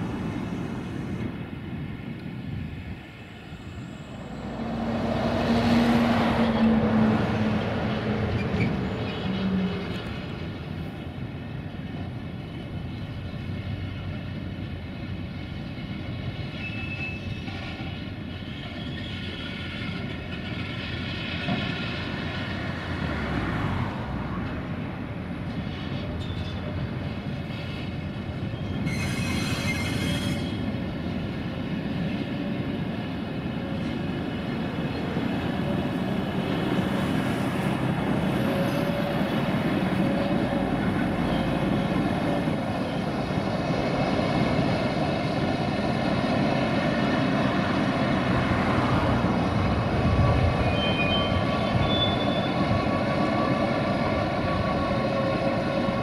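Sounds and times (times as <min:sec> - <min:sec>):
steel wheels rumbling on rail: 0:00.0 - 0:56.0
faint wheel squealing: 0:50.6 - 0:53.5.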